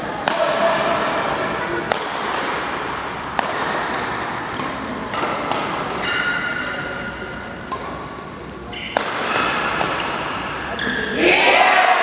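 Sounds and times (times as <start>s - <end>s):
badminton racket hitting shuttlecock: 0.2s - 1.2s, 1.9s - 11.1s
crowd murmur in a hall: 4.2s - 9.0s.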